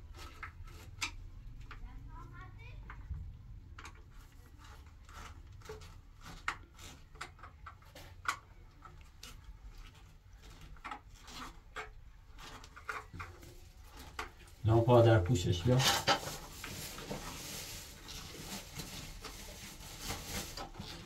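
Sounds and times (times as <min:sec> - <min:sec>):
hands scraping plastic: 0:00.0 - 0:01.9, 0:02.9 - 0:21.0.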